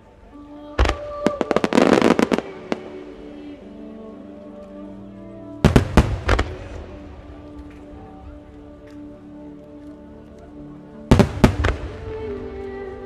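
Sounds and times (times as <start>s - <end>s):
music with sustained tones: 0.0s - 13.0s
fireworks bangs: 11.1s - 12.3s.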